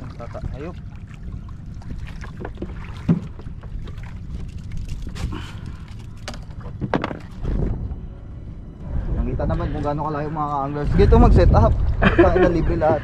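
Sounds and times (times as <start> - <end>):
water slapping boat hull: 0.0 - 8.1
wind buffeting microphone: 6.7 - 13.0.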